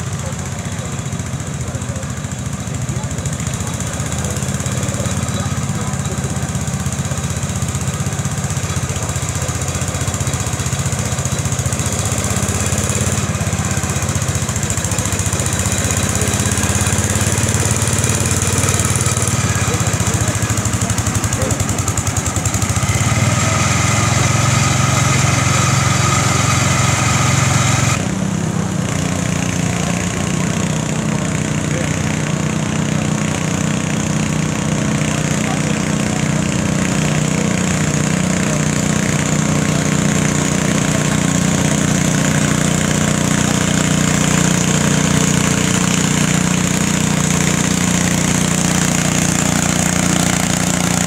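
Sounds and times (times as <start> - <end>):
second tractor engine running: 0.0 - 51.0
tractor engine running under load: 0.0 - 51.0.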